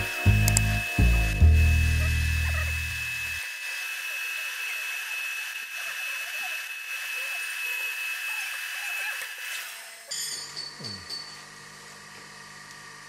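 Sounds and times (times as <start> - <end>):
drill whining: 0.0 - 10.2.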